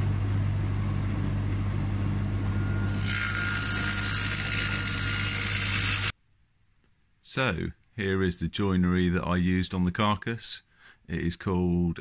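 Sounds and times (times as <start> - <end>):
table saw motor hum: 1.9 - 6.1.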